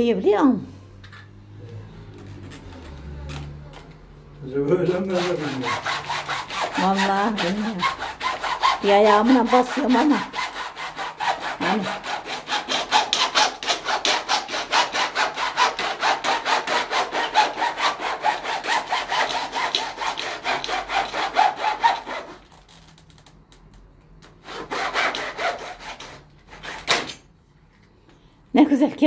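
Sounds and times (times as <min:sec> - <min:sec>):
hacksaw cutting plastic: 0:04.7 - 0:23.0, 0:24.3 - 0:27.3.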